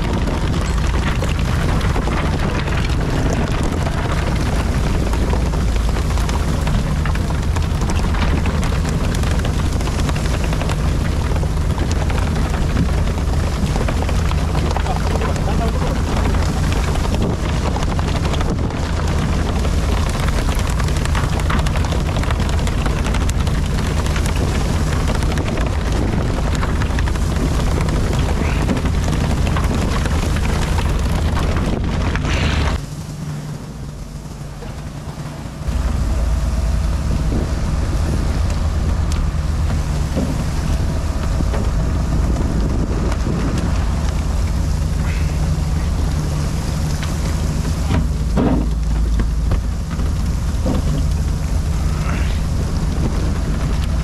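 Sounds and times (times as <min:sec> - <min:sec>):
boat engine rumble: 0:00.0 - 0:54.0
spraying water: 0:00.0 - 0:54.0
wind rushing: 0:35.1 - 0:48.3.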